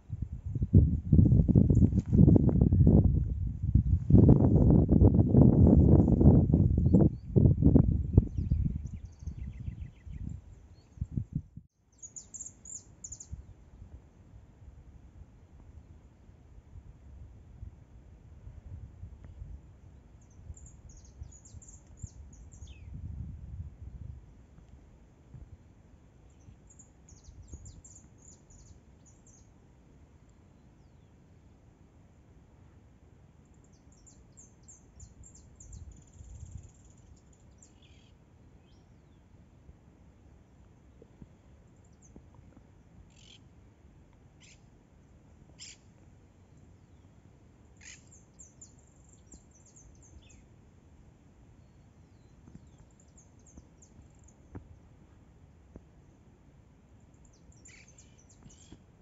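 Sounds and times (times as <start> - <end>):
faint low rumble: 0.0 - 33.1
small birds chirping: 8.1 - 13.4, 20.2 - 22.9, 26.2 - 29.5, 43.1 - 43.5, 44.4 - 44.7, 45.5 - 46.0, 47.7 - 50.5, 51.6 - 54.7, 57.1 - 59.0.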